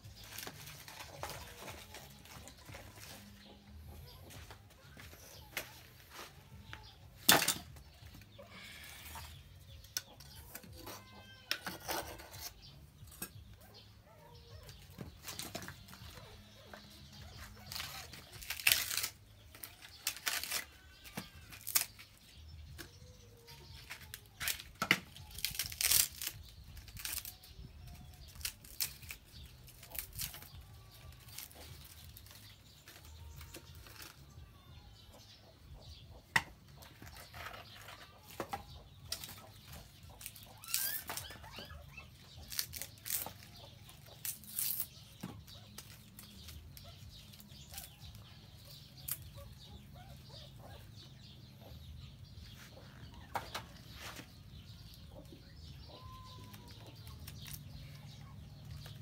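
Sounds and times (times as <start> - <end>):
chickens clucking: 0.8 - 7.1, 34.8 - 44.3, 45.2 - 59.0
sticks snapping and clicking: 28.2 - 34.2.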